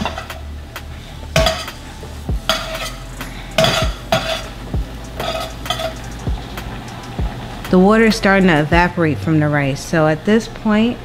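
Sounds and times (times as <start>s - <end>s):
metal spatula scraping frying pan: 0.0s - 0.5s, 1.2s - 7.2s.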